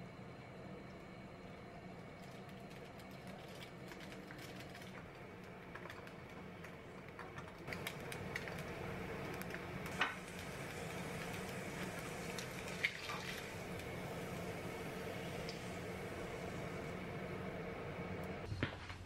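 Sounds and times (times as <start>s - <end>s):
egg sizzling in a frying pan: 7.7s - 18.5s.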